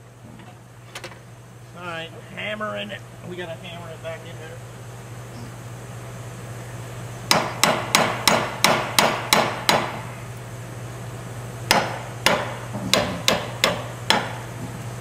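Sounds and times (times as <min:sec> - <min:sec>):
hammer striking metal: 0:07.3 - 0:10.0.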